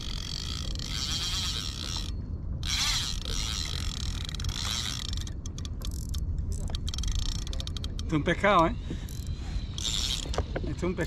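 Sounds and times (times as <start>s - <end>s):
fishing reel drag ratcheting: 0.0s - 8.2s, 9.0s - 11.0s
fishing reel gears whirring: 0.0s - 11.0s.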